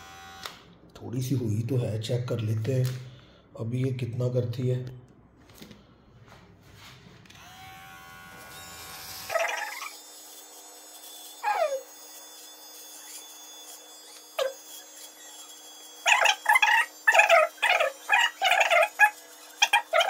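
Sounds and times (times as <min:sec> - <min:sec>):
electric beard trimmer buzzing: 0:00.0 - 0:00.7, 0:07.3 - 0:20.0
loud animal calls: 0:09.3 - 0:09.9, 0:16.1 - 0:20.0.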